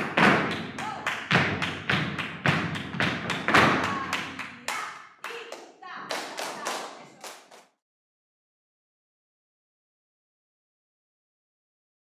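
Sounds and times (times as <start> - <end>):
dance shoes striking floor: 0.0 - 4.4.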